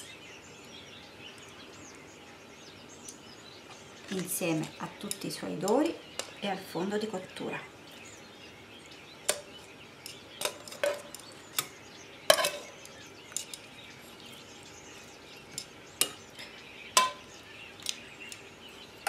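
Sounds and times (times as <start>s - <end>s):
metal tongs clinking on pans: 4.6s - 6.4s, 9.3s - 11.7s, 12.3s - 13.7s, 15.5s - 18.4s.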